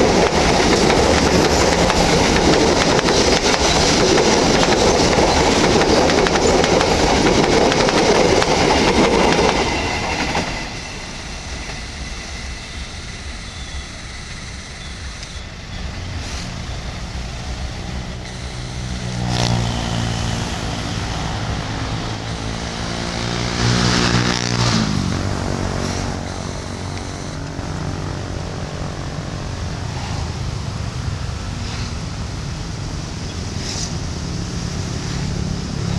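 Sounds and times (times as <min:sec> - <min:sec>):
train wheels clattering on rails: 0:00.0 - 0:14.0
low engine drone: 0:00.0 - 0:33.2.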